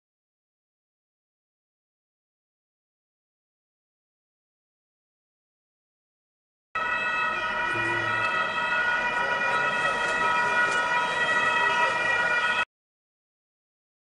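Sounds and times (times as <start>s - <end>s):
police car sirens: 6.8s - 12.7s.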